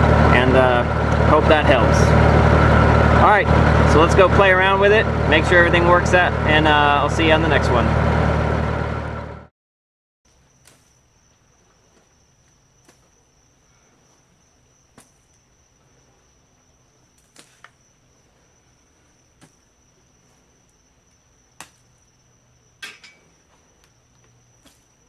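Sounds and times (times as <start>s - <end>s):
cricket trilling: 10.3s - 25.0s.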